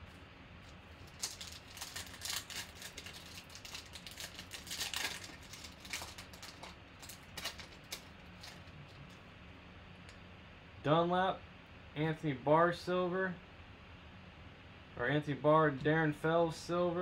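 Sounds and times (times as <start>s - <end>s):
foil wrapper crinkling and tearing: 0.6s - 9.1s.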